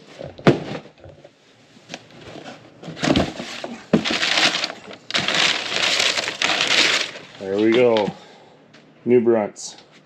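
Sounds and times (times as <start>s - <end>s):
packing paper rustling: 2.3s - 8.2s
cardboard box opening: 2.9s - 8.1s.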